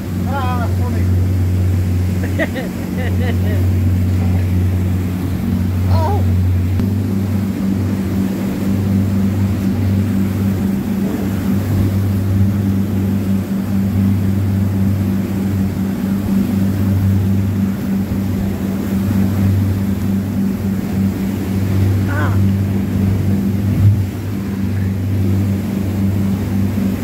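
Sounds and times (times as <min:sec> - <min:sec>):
boat engine drone: 0:00.0 - 0:27.0.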